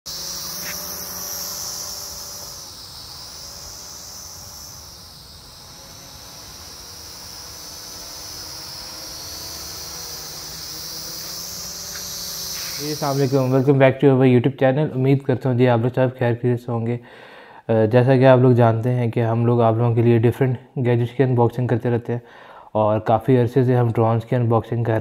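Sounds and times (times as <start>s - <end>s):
drone propellers whining: 0.1s - 13.7s.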